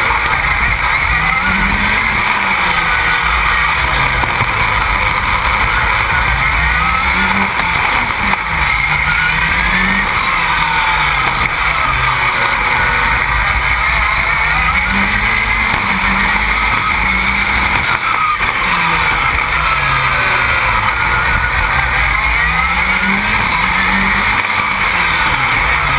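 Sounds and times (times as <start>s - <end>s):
racing engine revving: 0.0s - 25.9s.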